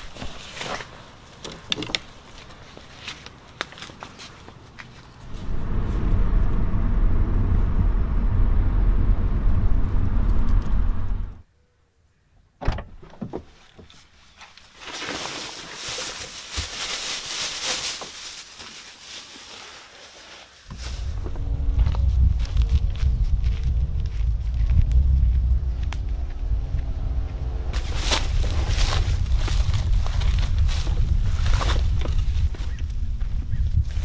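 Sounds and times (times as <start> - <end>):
car cabin rumble: 5.3 - 11.4, 20.7 - 31.2.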